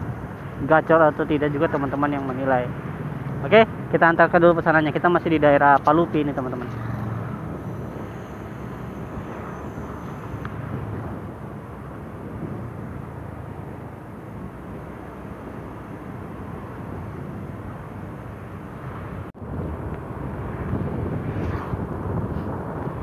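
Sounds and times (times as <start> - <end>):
wind rushing: 6.6 - 18.2, 18.8 - 23.0.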